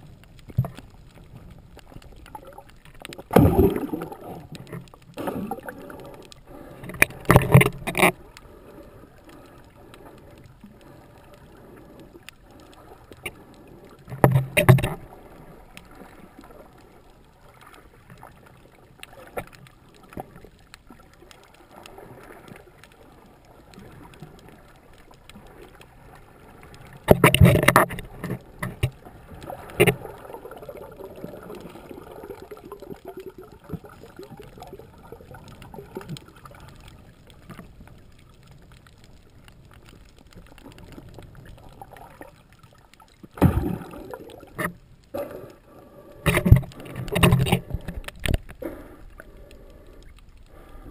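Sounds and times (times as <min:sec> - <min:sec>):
underwater water wash: 0:00.0 - 0:50.9
water rushing bursts: 0:03.3 - 0:06.2.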